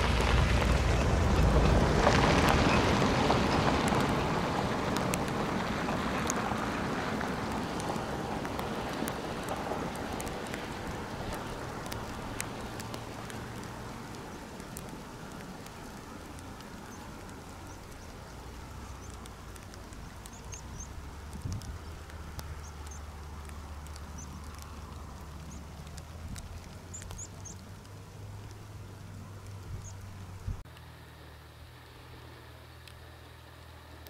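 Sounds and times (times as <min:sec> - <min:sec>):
distant vehicle engine drone: 0:00.0 - 0:34.0
small birds chirping: 0:11.3 - 0:30.6.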